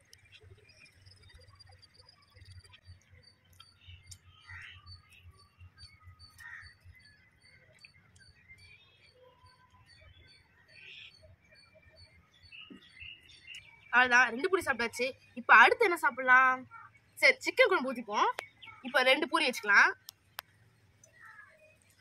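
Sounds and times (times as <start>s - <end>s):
bird calls: 0.0s - 22.0s.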